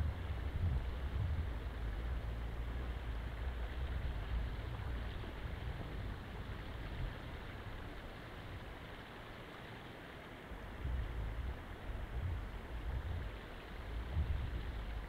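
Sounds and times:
wind buffeting microphone: 0.0s - 8.7s, 10.8s - 15.0s.

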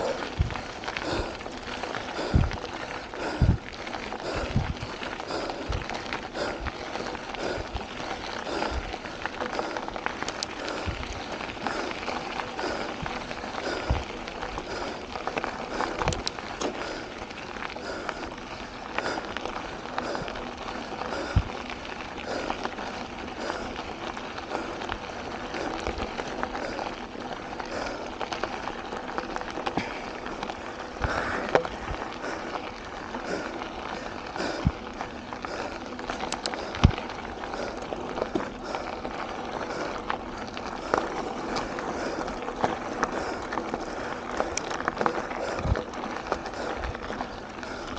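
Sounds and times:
bike tyres crunching on gravel: 0.0s - 47.9s
bike clicks and knocks: 3.4s - 19.6s, 34.6s - 47.9s.

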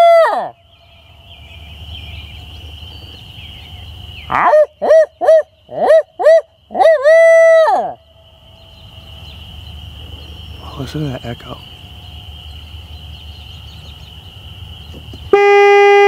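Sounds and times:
man hooting owl imitation: 4.3s - 8.0s.

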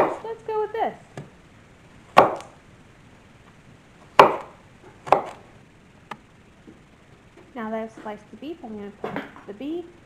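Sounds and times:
knife chopping on wooden board: 2.2s - 2.5s, 4.2s - 5.4s.

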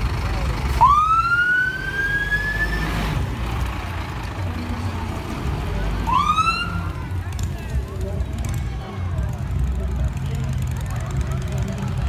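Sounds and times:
truck diesel engine: 0.0s - 12.0s
siren wails: 0.8s - 2.8s, 6.1s - 6.8s.

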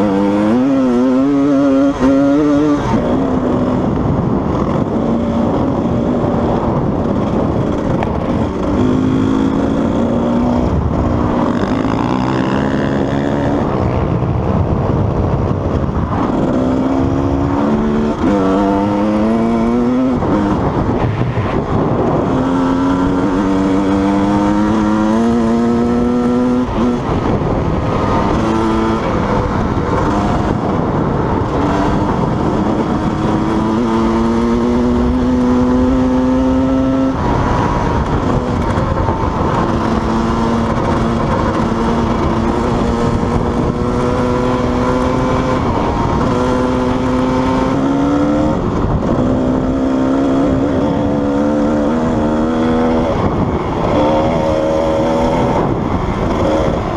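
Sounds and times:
dirt bike engine revving through gears: 0.0s - 14.0s, 16.2s - 20.7s, 22.1s - 56.9s.

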